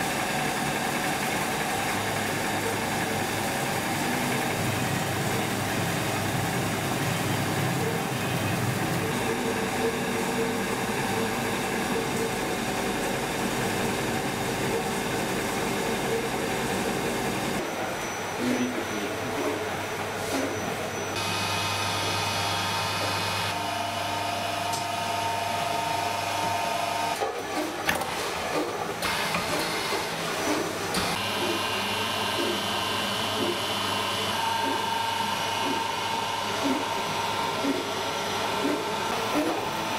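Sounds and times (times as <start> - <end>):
stone flour mill running: 0.0 - 17.6, 21.2 - 39.9
pasta machine motor whine: 21.1 - 39.9.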